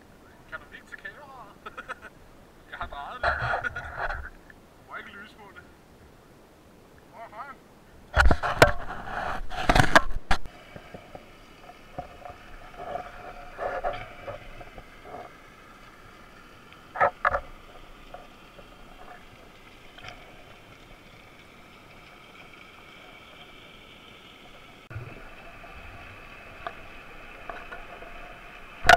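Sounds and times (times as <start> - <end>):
muffled underwater hiss: 0.0 - 28.9
small clicks underwater: 9.6 - 24.7, 26.4 - 28.9.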